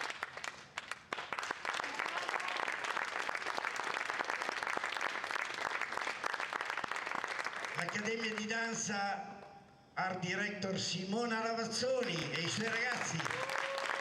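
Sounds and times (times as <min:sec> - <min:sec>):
audience applauding: 0:00.0 - 0:08.4, 0:12.0 - 0:14.0.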